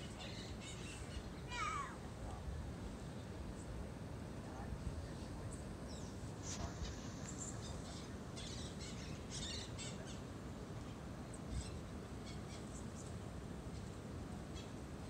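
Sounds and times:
birds chirping: 0:00.0 - 0:01.9, 0:05.1 - 0:14.8
steady low rumble: 0:00.0 - 0:15.0.

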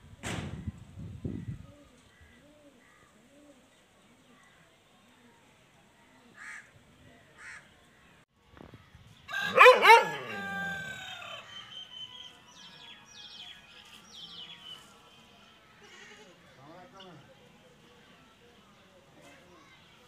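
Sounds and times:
dog howling bark: 0:09.3 - 0:11.3.

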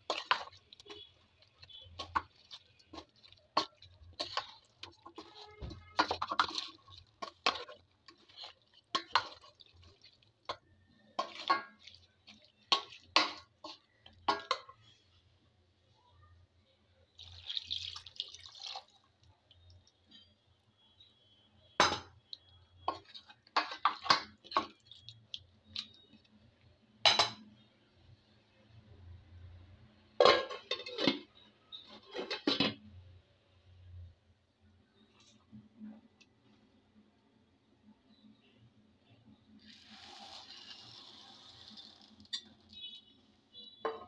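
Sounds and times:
spoon clinking against pot: 0:00.0 - 0:09.8, 0:12.7 - 0:14.8
water pouring and splashing: 0:00.0 - 0:14.6, 0:17.2 - 0:20.0, 0:39.6 - 0:43.0
spoon stirring and scraping in a pot: 0:00.0 - 0:15.2, 0:21.8 - 0:27.6, 0:30.2 - 0:33.0, 0:39.4 - 0:44.0.

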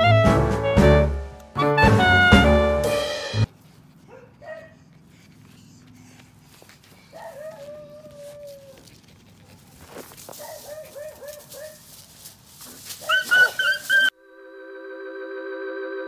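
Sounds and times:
dogs yapping: 0:04.0 - 0:05.9, 0:07.0 - 0:09.6, 0:10.3 - 0:11.8, 0:12.6 - 0:14.1
dogs whining: 0:07.1 - 0:08.9, 0:13.0 - 0:14.1.

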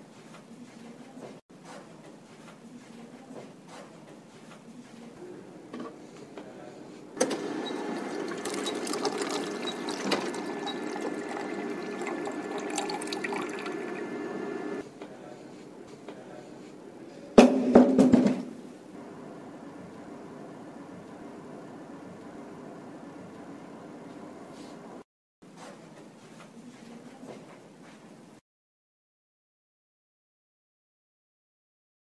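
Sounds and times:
vending machine whirring: 0:07.2 - 0:14.8, 0:18.9 - 0:25.0
liquid pouring: 0:07.3 - 0:14.8.

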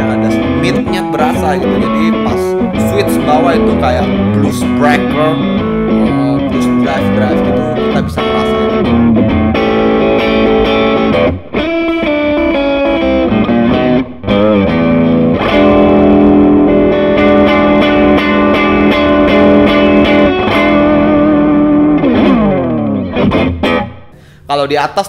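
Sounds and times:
overdriven electric guitar riffs: 0:00.0 - 0:24.5.

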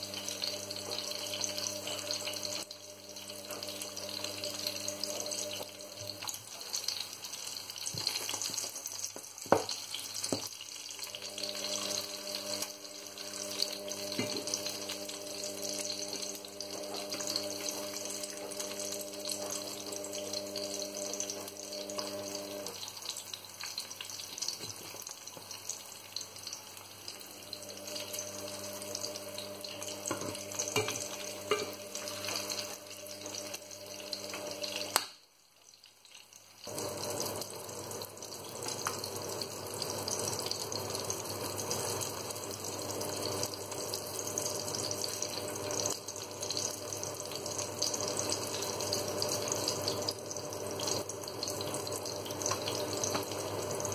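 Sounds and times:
fish sizzling in hot oil: 0:00.0 - 0:53.9.

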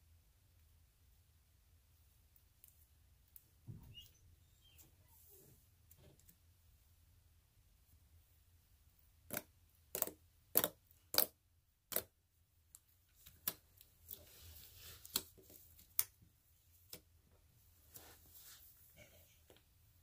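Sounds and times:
slime squishing: 0:09.2 - 0:16.2
slime clicking and popping: 0:09.3 - 0:12.1.

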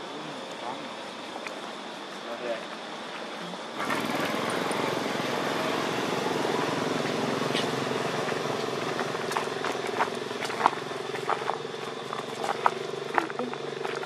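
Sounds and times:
engine running: 0:03.7 - 0:14.0.

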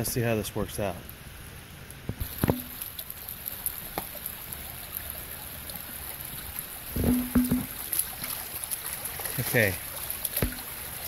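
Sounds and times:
creek water trickling over stones: 0:00.0 - 0:11.0
short knocks: 0:07.0 - 0:07.8.

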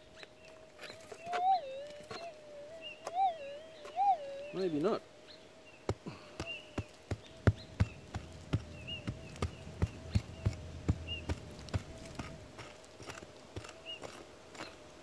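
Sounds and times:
pick chopping into soil: 0:05.8 - 0:14.8.

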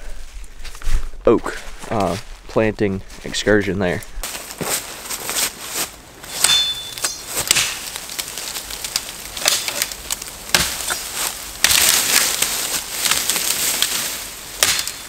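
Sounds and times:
twigs and leaves crackling: 0:00.1 - 0:15.0
machete chopping branches: 0:06.2 - 0:15.0.

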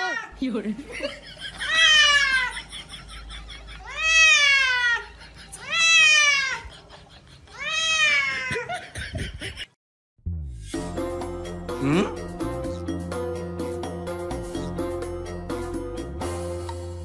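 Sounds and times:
cat meowing in distress: 0:03.9 - 0:05.0, 0:07.6 - 0:08.5.

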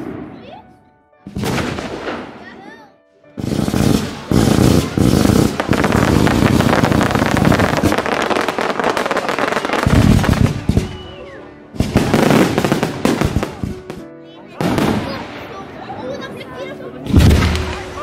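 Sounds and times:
fireworks bangs and crackles: 0:00.0 - 0:00.6, 0:01.3 - 0:02.6, 0:03.4 - 0:15.5, 0:17.0 - 0:18.0
firework whistle: 0:10.0 - 0:11.5.

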